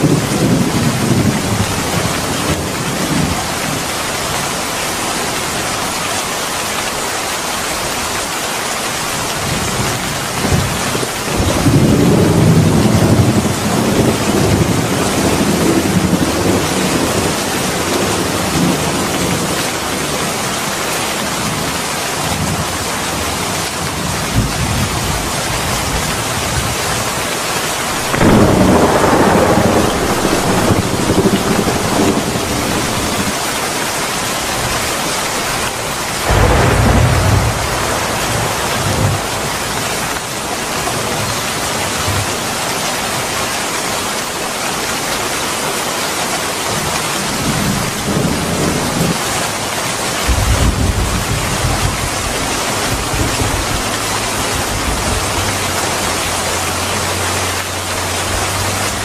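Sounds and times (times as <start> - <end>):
heavy rain falling: 0.0 - 59.0
thunder rolling: 9.4 - 20.6, 27.8 - 33.8, 36.2 - 42.3, 47.2 - 55.6.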